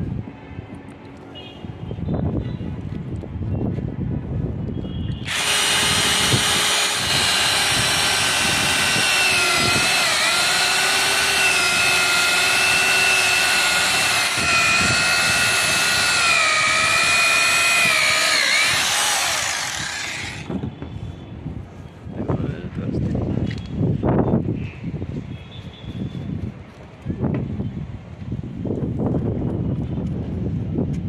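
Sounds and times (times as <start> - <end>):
electric drill boring plastic: 5.2 - 20.5.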